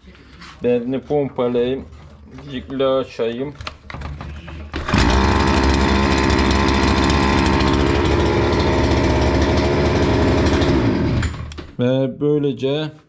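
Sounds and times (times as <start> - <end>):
brushcutter engine running: 4.7 - 11.5.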